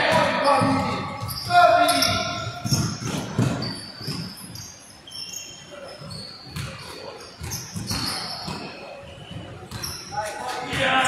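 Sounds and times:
basketball bouncing on court: 0:00.0 - 0:04.5, 0:06.5 - 0:10.1
sneakers squeaking on floor: 0:00.0 - 0:11.0.

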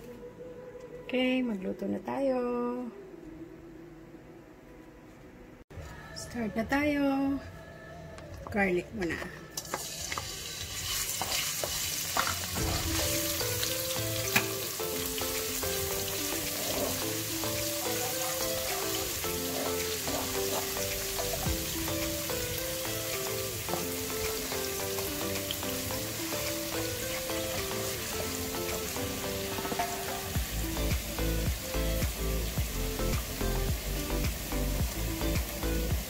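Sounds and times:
garlic sizzling in oil: 0:09.6 - 0:36.0.

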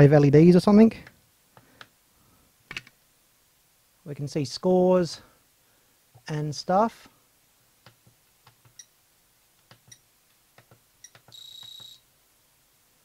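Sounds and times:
high-pitched buzzer beep: 0:11.0 - 0:12.1.

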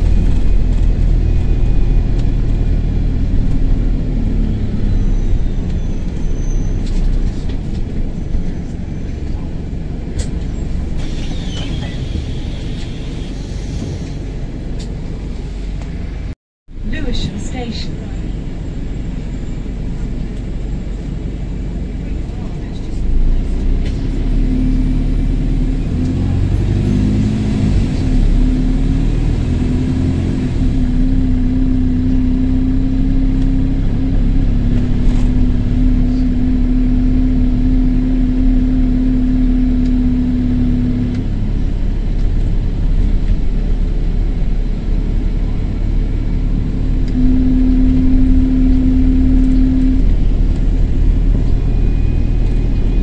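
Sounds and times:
bus engine running: 0:00.0 - 0:53.0
turbo exhaust burst: 0:47.1 - 0:50.5.

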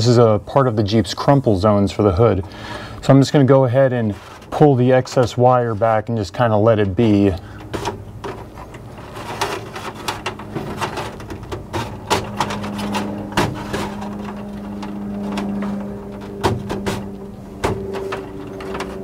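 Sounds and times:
steady low hum: 0:00.0 - 0:19.0
wire scraping and clicking: 0:02.4 - 0:19.0.

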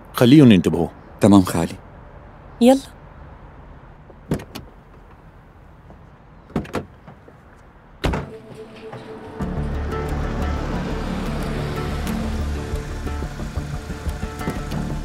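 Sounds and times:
car door slamming: 0:04.2 - 0:04.8, 0:08.0 - 0:09.2
background music: 0:08.1 - 0:15.0.

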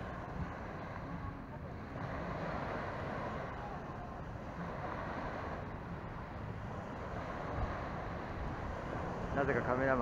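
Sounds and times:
small waves washing onto sand: 0:00.0 - 0:10.0
wind buffeting microphone: 0:00.0 - 0:10.0.

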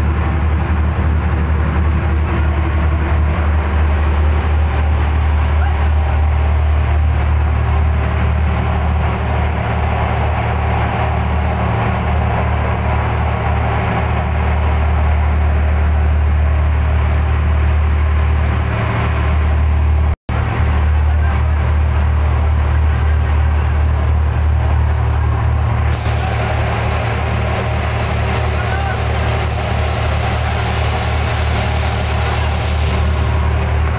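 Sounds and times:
boat engine low drone: 0:00.0 - 0:33.9
higher hiss: 0:26.0 - 0:33.4.

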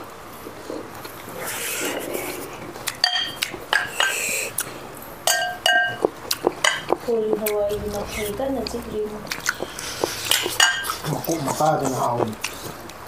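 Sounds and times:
metal spoon clinking on glass bowl: 0:05.3 - 0:06.0.

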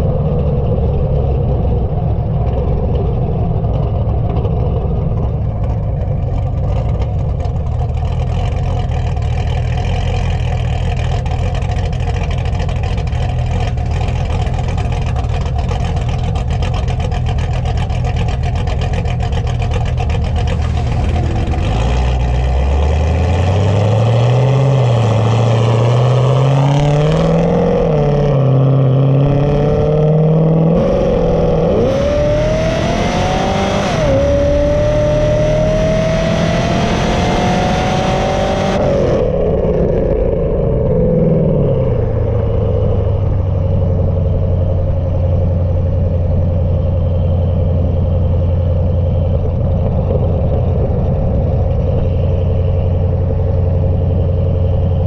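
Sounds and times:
car engine with deep exhaust note: 0:00.0 - 0:55.0.

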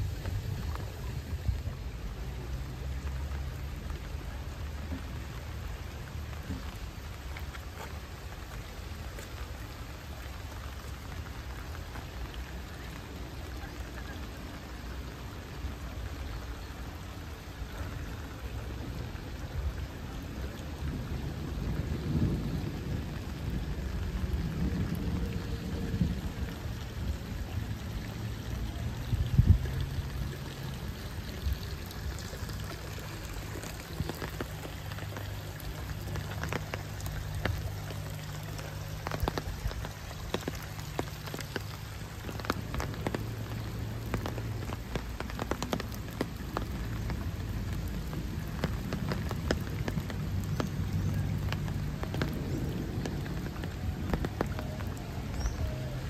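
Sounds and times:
rain falling on water: 0:00.0 - 0:56.0
drops ticking close by: 0:29.0 - 0:56.0.

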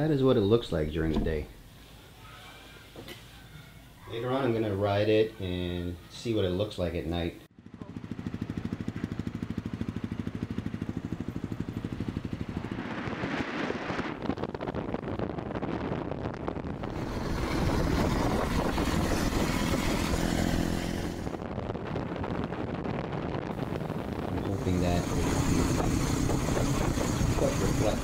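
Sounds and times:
motorcycle engine idling: 0:07.6 - 0:12.5
motorcycle running under power: 0:07.6 - 0:12.7, 0:16.8 - 0:21.5, 0:23.6 - 0:28.0
wind on microphone: 0:12.1 - 0:28.0.

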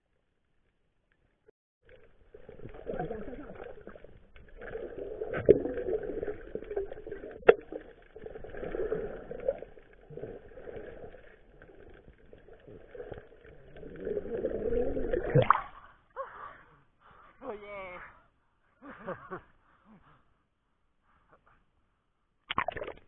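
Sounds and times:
underwater rushing and bubbling: 0:01.8 - 0:16.0.

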